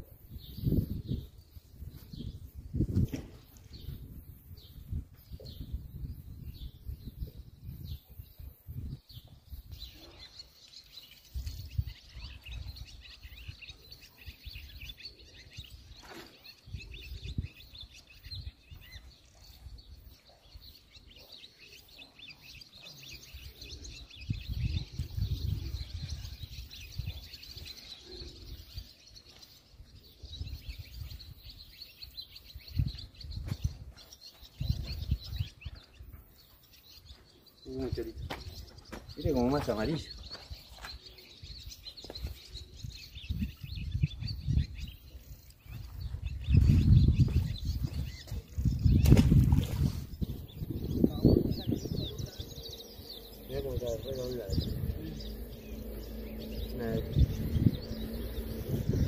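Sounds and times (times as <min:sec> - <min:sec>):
birds chirping in chorus: 0:00.0 - 0:59.0
low rumbles: 0:50.2 - 0:59.0.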